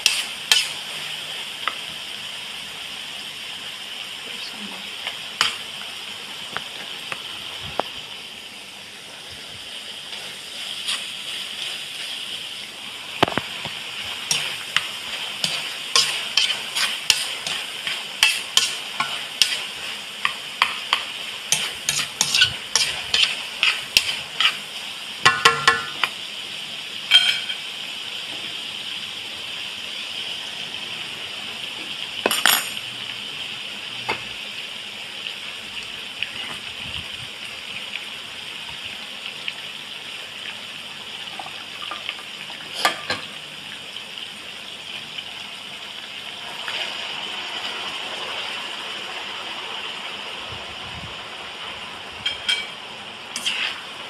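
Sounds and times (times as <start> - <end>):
meat sizzling in a wok: 0.0 - 54.0
utensil scraping a pan: 14.3 - 24.6, 53.3 - 53.9.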